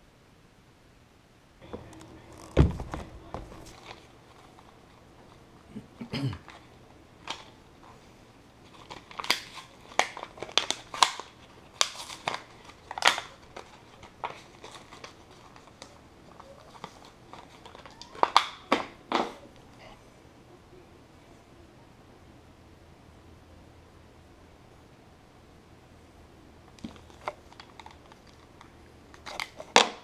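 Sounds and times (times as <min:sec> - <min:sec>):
plastic blister pack crackling: 0:01.8 - 0:05.6, 0:06.4 - 0:19.0, 0:26.7 - 0:30.0.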